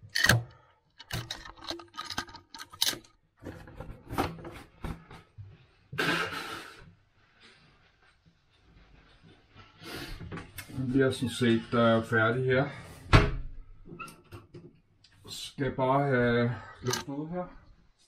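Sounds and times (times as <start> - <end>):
nose blowing: 6.0 - 6.8.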